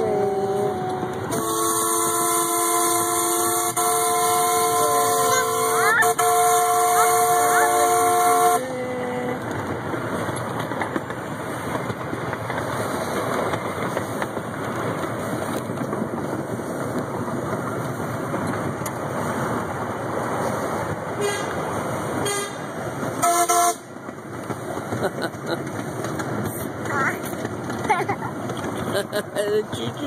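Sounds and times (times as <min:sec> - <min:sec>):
train wheels rumbling on rails: 0:00.0 - 0:30.0
train whistle toots: 0:00.2 - 0:08.7, 0:21.2 - 0:21.6, 0:22.2 - 0:22.6, 0:23.2 - 0:23.9.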